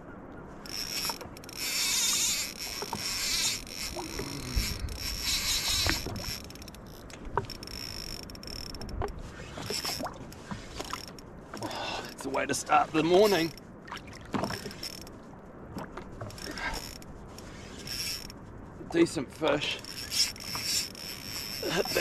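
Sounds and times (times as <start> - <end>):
fishing reel whirring: 0.6 - 10.1, 14.6 - 15.1, 16.3 - 18.4, 19.7 - 22.0
reel clicks: 0.6 - 13.6, 14.3 - 15.1, 15.8 - 22.0.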